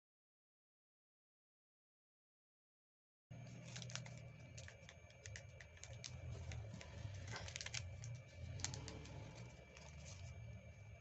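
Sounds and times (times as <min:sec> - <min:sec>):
paper crackling as folded: 0:03.3 - 0:10.4
steady low hum: 0:03.3 - 0:11.0.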